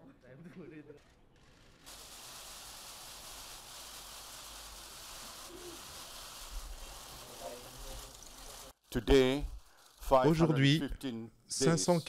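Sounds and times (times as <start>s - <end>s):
room hiss: 1.9s - 10.2s.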